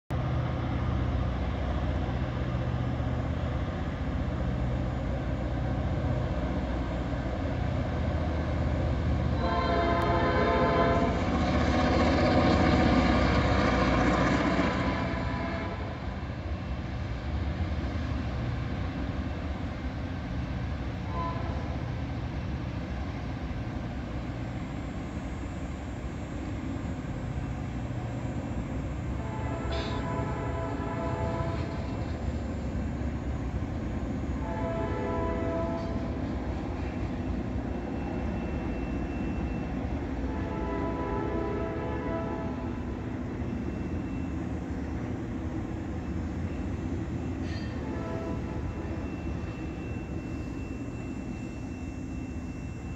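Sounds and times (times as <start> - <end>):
diesel locomotives rumbling: 0.1 - 52.9
train horn blast: 9.3 - 11.5, 13.7 - 16.1, 21.0 - 21.8, 29.1 - 32.1, 34.3 - 36.3, 40.2 - 42.9, 47.4 - 49.2.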